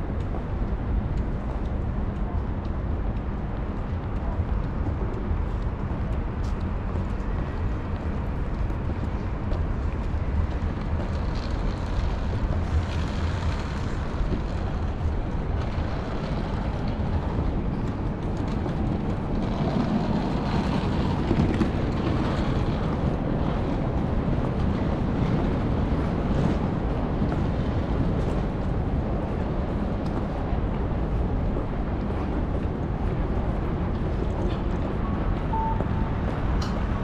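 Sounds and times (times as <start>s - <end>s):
road traffic hum: 0.0s - 37.0s
wind rumbling on microphone: 0.0s - 37.0s.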